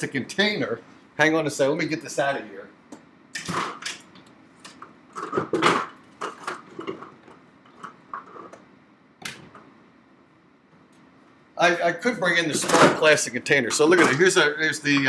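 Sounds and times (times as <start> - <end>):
knocks and clunks of objects: 3.4 - 4.0, 4.7 - 8.6.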